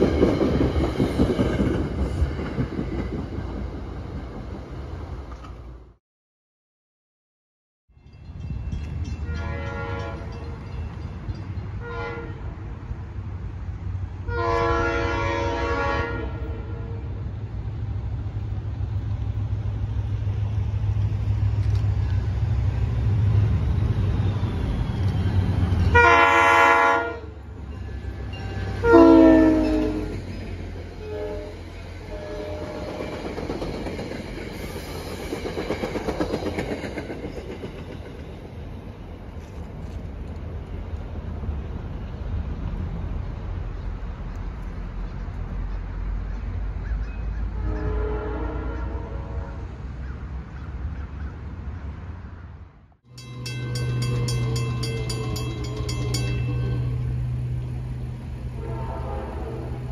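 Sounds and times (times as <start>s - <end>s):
rush of passing train: 0.0s - 6.0s, 7.9s - 59.9s
train air horn blasts: 9.2s - 10.4s, 11.8s - 12.5s, 14.3s - 17.2s, 25.9s - 27.4s, 28.6s - 30.2s, 31.0s - 33.0s, 47.6s - 49.7s, 58.4s - 59.9s.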